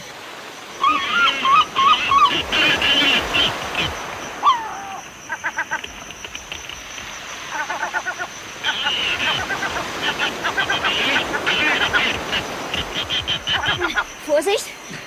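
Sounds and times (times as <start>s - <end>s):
swooping animal call: 0.8s - 14.2s
wavering animal cries: 0.8s - 14.2s
rapid chattering call: 0.8s - 14.6s
noisy rush with clicks: 5.7s - 7.2s.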